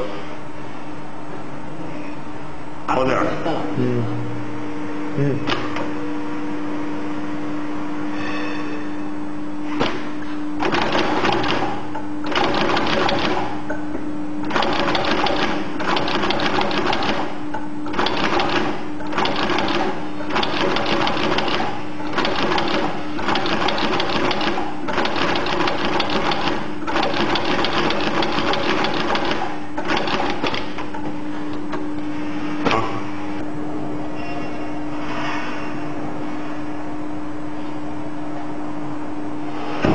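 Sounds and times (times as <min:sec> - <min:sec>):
motor hum: 0:09.0 - 0:35.1.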